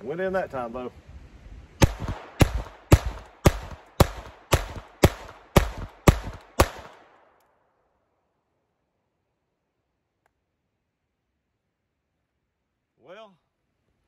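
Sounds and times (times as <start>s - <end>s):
pistol shots with ringing tail: 1.8s - 7.2s.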